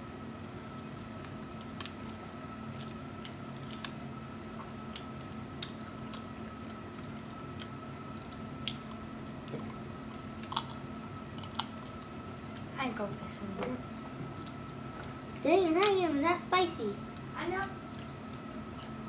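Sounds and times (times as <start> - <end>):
faint steady hum: 0.0 - 19.0
wet squishing and chewing: 0.6 - 12.8, 13.6 - 16.0.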